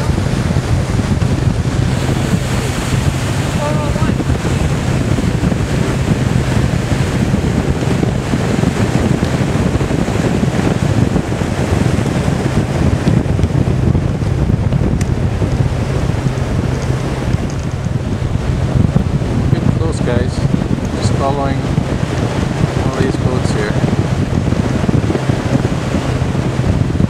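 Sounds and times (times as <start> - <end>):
boat motor drone: 0.0 - 27.0
rushing water: 0.0 - 27.0
wind buffeting microphone: 0.0 - 27.0.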